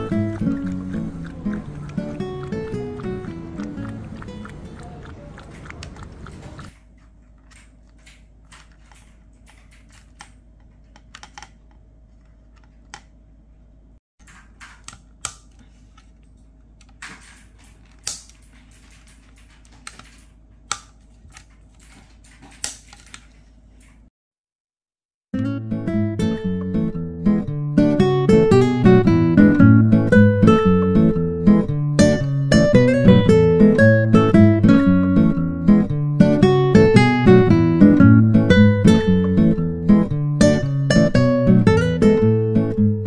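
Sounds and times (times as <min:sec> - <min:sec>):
music: 0:00.0 - 0:04.8, 0:25.4 - 0:43.0.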